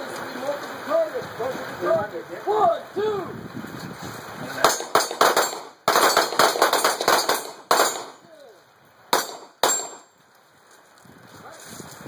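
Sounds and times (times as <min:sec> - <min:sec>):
pistol shots: 0:04.7 - 0:08.2, 0:09.1 - 0:10.1.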